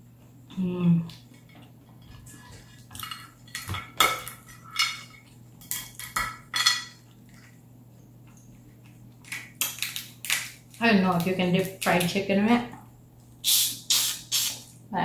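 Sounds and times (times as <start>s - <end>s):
crawfish shell cracking: 9.2s - 12.1s.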